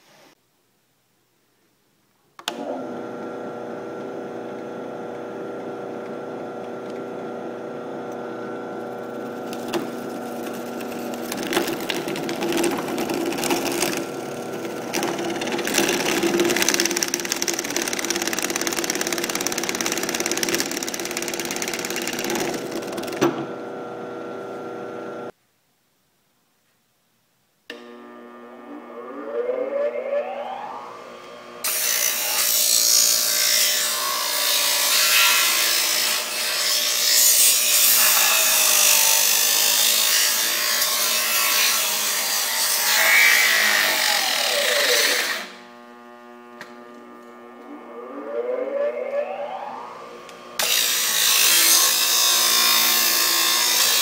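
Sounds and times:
drill press motor humming: 2.4 - 25.3, 42.9 - 54.0
drill bit grinding and crackling: 4.0 - 23.2, 31.6 - 47.7, 50.2 - 54.0.

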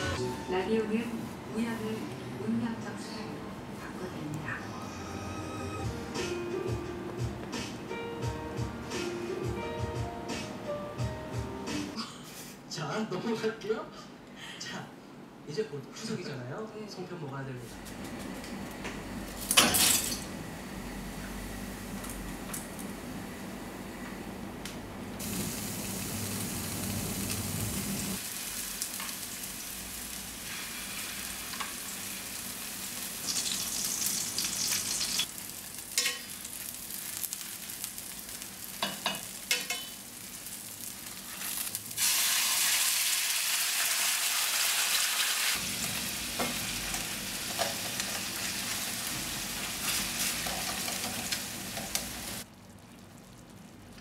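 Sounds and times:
food sizzling in hot oil: 25.2 - 53.5
metal tongs clicking on pan: 38.8 - 40.0.

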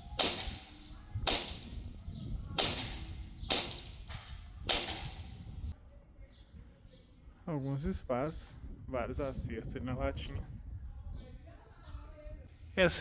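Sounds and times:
airsoft pistol shots: 0.0 - 1.9, 2.5 - 5.4.

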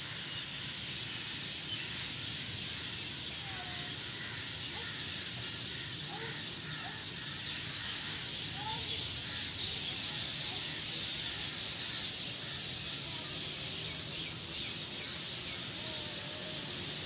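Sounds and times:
flock of birds calling: 0.0 - 17.0.

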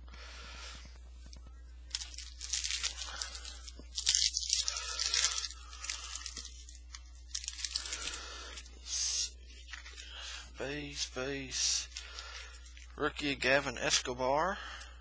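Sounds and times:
plastic wrapper crinkling and tearing: 1.3 - 10.6, 11.8 - 13.0
cards shuffling: 1.3 - 13.0.

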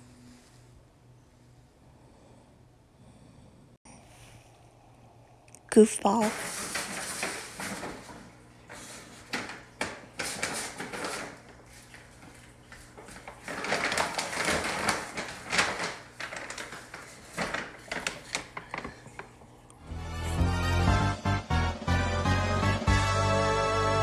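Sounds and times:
paper bag crinkling and rustling: 6.0 - 19.4.

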